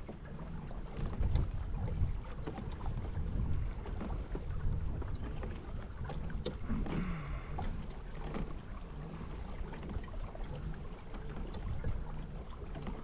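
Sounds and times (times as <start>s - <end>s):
water lapping at hull: 0.0s - 13.0s
wind buffeting microphone: 1.0s - 7.9s.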